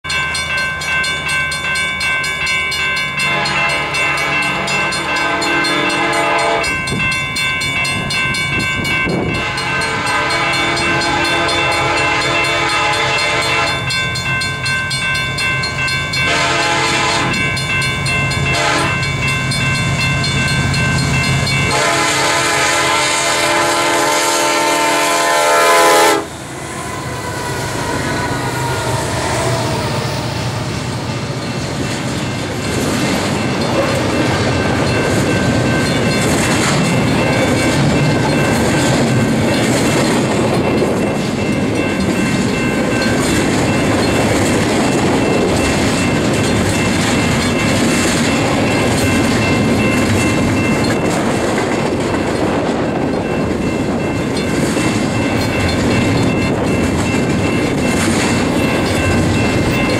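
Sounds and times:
train rumbling past: 0:00.1 - 0:59.9
locomotive air horn blasts: 0:03.3 - 0:06.7, 0:09.3 - 0:13.8, 0:16.2 - 0:17.4, 0:18.5 - 0:19.0, 0:21.7 - 0:26.4.

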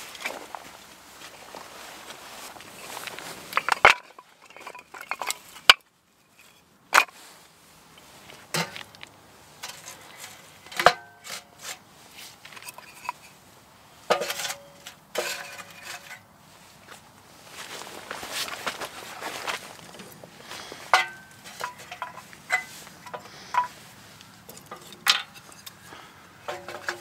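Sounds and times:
wooden kindling clacking: 0:02.6 - 0:05.8, 0:26.4 - 0:27.0.

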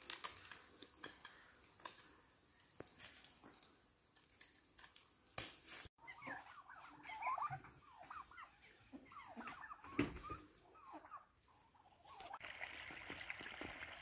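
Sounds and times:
meat crackling over charcoal: 0:00.0 - 0:06.0
small birds chirping: 0:06.0 - 0:12.4.

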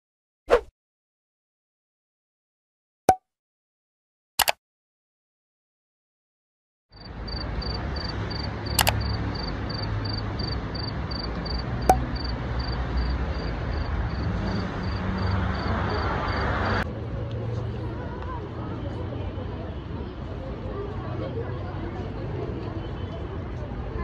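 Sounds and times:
sharp clicks: 0:04.4 - 0:04.6, 0:08.8 - 0:09.1
cricket chirping: 0:06.9 - 0:16.4.

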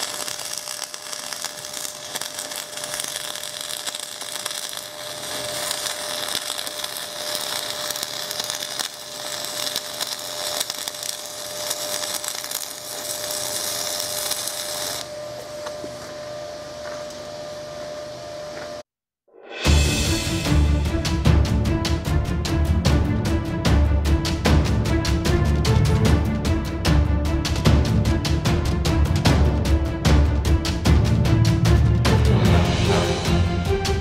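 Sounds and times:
welding arc crackling: 0:00.0 - 0:15.5.

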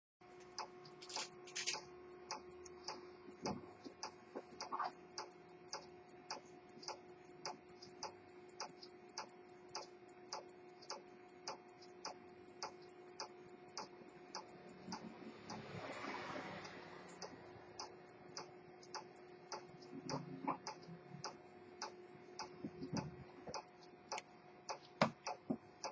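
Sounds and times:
faint steady hum: 0:00.2 - 0:25.9
pocket watch ticking: 0:00.3 - 0:25.9.

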